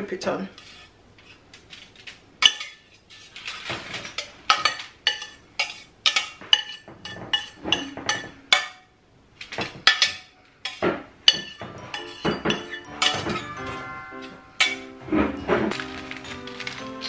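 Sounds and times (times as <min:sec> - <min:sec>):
utensil scraping metal saucepan: 0:00.5 - 0:08.8, 0:09.4 - 0:17.0.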